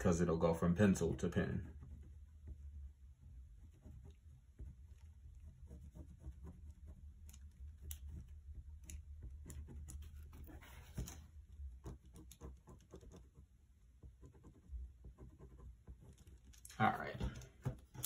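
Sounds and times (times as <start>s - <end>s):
pen scratching on paper: 1.6s - 2.7s, 3.4s - 16.5s.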